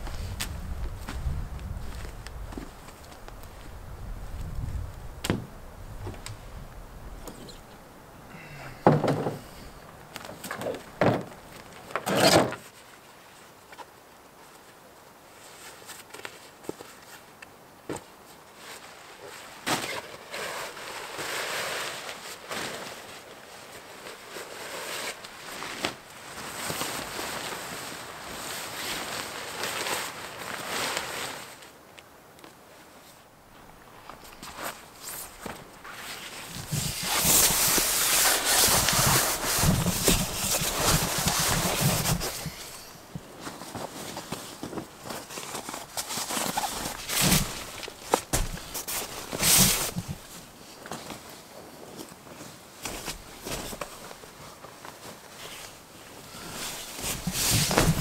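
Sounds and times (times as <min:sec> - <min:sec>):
tent fabric rustling: 0:09.5 - 0:58.0
dull bumps: 0:47.2 - 0:50.2.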